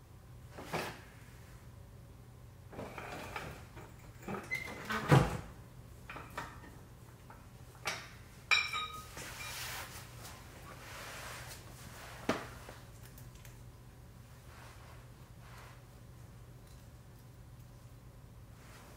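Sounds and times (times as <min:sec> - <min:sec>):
metal tools knocking and clinking: 0:07.8 - 0:09.1
metal part ringing: 0:08.5 - 0:09.1.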